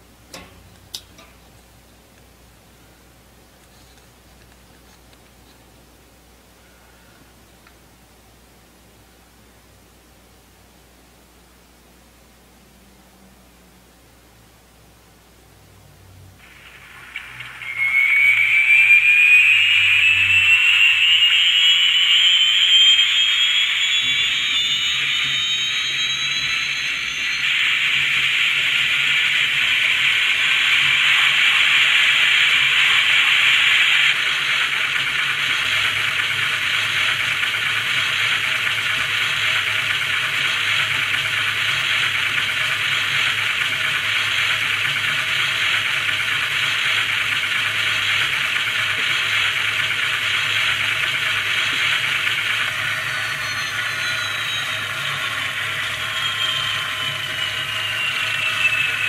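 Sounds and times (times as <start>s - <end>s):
low hum: 15.7s - 59.0s
turbine whine rising in pitch: 16.1s - 59.0s.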